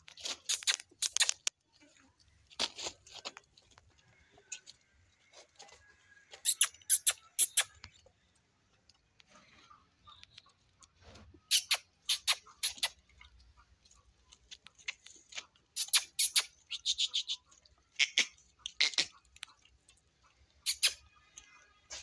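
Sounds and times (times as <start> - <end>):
calf suckling clicks: 0.4 - 1.6, 11.5 - 13.0.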